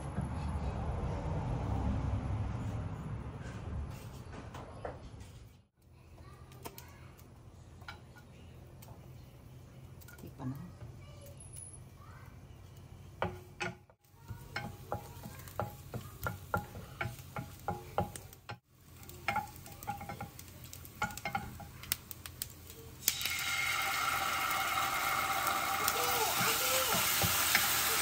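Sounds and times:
wooden spoon tapping in frying pan: 13.2 - 22.0, 25.8 - 27.8
sauce sizzling in hot pan: 14.6 - 28.0.

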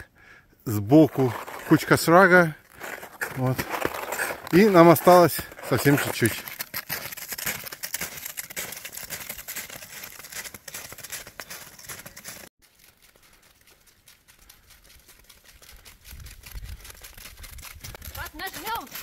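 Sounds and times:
snowshoe footsteps crunching on snow: 0.9 - 14.6, 17.7 - 19.0.

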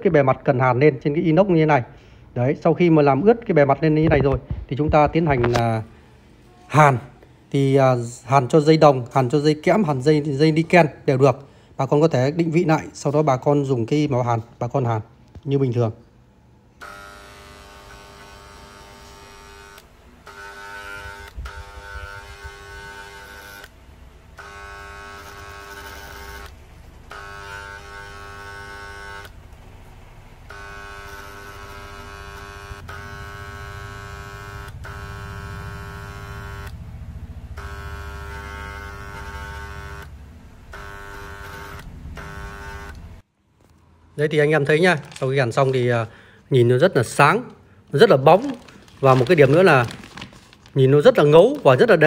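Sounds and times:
soldering gun buzzing: 16.8 - 43.2.

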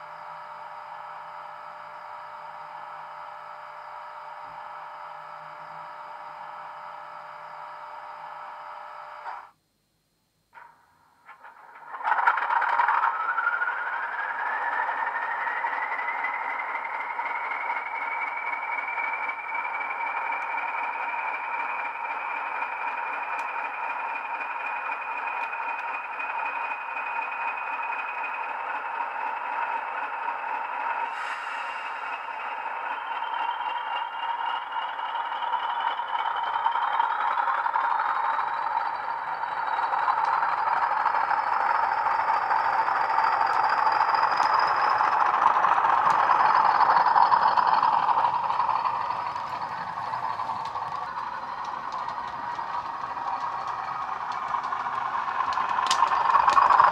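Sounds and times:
diesel locomotive engine running: 0.0 - 9.6, 10.6 - 56.9
turbocharger whistle: 11.6 - 56.9.

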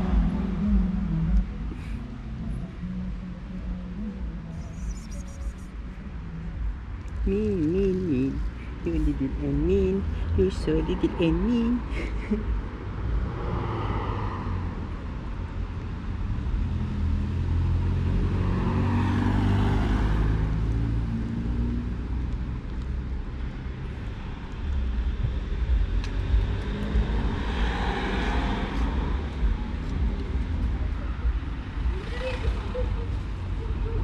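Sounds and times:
vehicles passing: 0.0 - 34.0.

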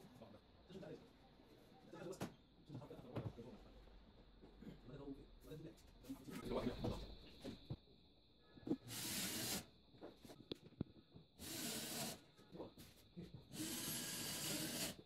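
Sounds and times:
cordless drill driving screws: 8.9 - 9.6, 11.4 - 12.2, 13.5 - 15.0.

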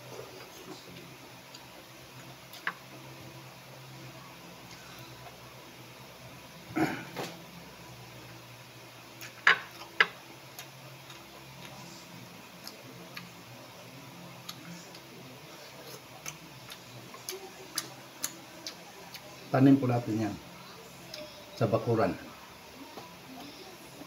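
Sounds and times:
faint low hum: 0.0 - 24.0
chewing and lip smacks: 9.2 - 13.4, 15.7 - 19.3.

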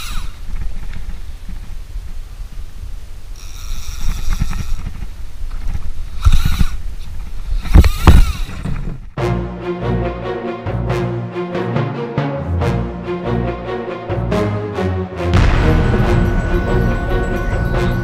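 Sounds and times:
music: 9.2 - 18.0.

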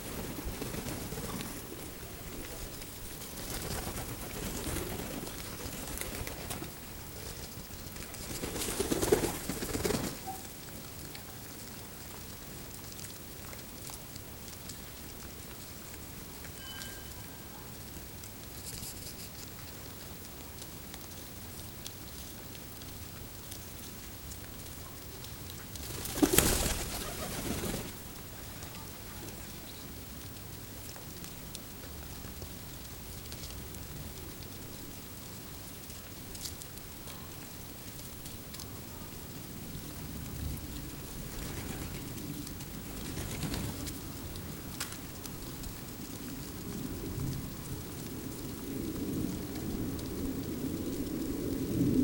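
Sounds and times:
pigeons pecking seed: 0.0 - 10.4, 25.1 - 29.6, 40.0 - 46.2
pigeons cooing: 25.8 - 27.9.

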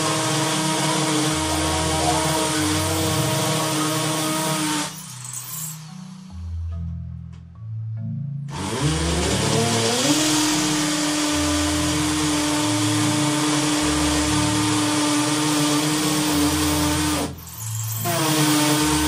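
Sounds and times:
cordless drill whining: 0.0 - 6.3, 8.5 - 19.0
drilling hiss: 0.0 - 6.4.

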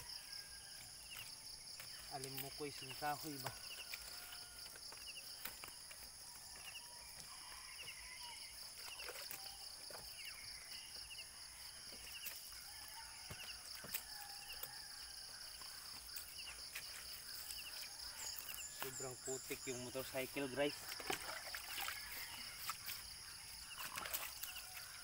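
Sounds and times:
insects droning: 0.0 - 25.0
water splashing: 20.6 - 23.0, 23.6 - 24.9.

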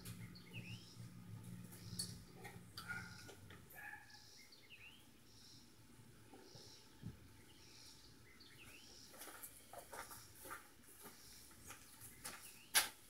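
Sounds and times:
bird chirp: 0.0 - 12.9
footsteps on dirt and grass: 8.6 - 13.0.

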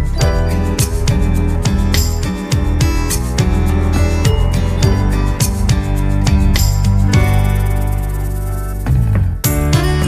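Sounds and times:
instrumental music with light beat: 0.0 - 10.0.

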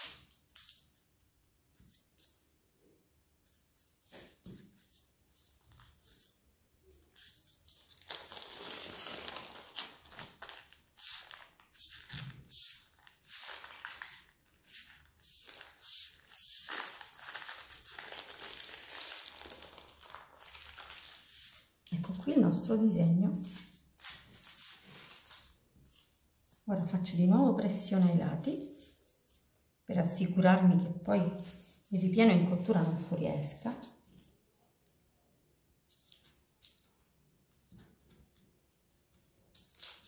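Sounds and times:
parchment paper crinkling: 3.4 - 22.7, 23.3 - 26.7, 27.9 - 29.6, 35.8 - 40.0
soft handling sounds: 23.4 - 26.7, 28.0 - 29.7.

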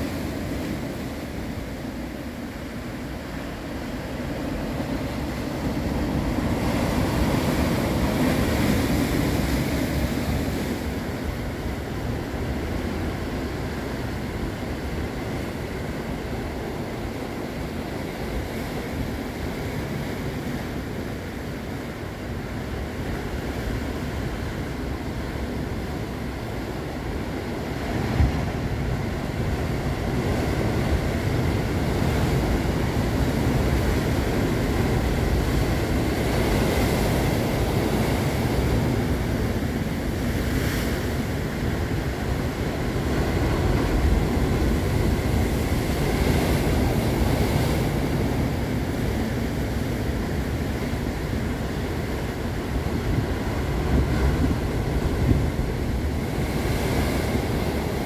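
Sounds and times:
waves crashing on rocks: 0.0 - 58.0
wind buffeting microphone: 27.0 - 58.0.

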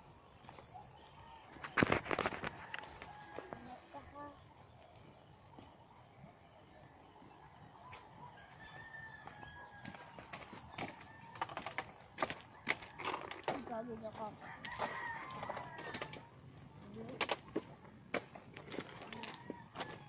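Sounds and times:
insects chirping: 0.0 - 20.0
rooster crowing: 2.4 - 4.0, 7.8 - 11.6, 14.3 - 16.4, 19.0 - 20.0.

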